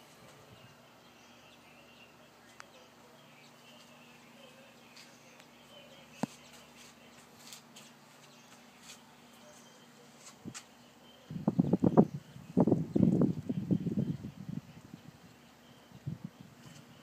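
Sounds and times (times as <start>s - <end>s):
low steady hum: 0.0s - 17.0s
faint bird chirps: 8.2s - 17.0s.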